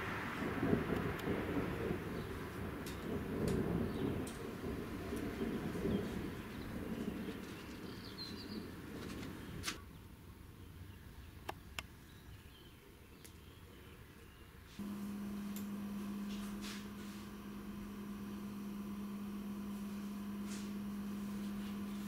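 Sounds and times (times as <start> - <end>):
faint outdoor ambience: 0.0 - 22.0
bird chirp: 5.5 - 14.6
low electrical hum: 14.8 - 22.0
sharp clicks: 14.9 - 15.8.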